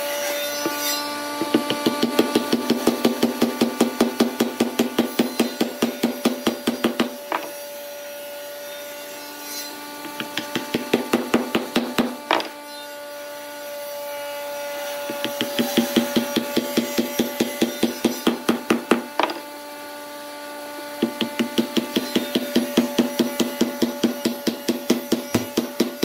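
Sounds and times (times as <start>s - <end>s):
wooden mallet tapping wood: 1.4s - 4.8s, 5.4s - 7.5s, 10.0s - 12.5s, 15.1s - 19.4s, 21.0s - 26.0s.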